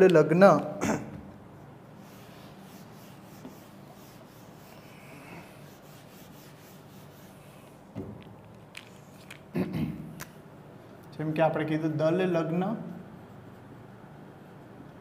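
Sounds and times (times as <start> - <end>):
eraser rubbing on whiteboard: 1.6 - 7.9.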